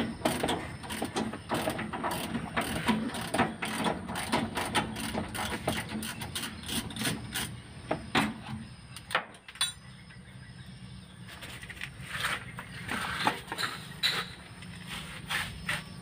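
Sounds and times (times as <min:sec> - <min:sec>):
sharp metallic clink: 0:09.6 - 0:09.9.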